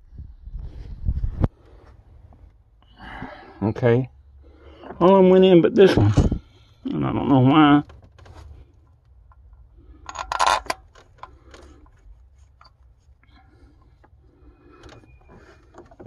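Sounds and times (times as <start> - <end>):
metal tools clicking and scraping: 9.3 - 12.9.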